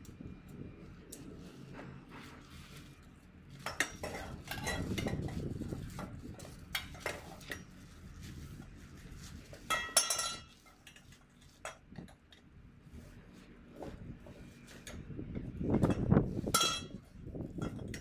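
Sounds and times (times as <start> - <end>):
metal tubes clinking and knocking: 3.6 - 5.5, 9.7 - 12.3, 15.8 - 18.0.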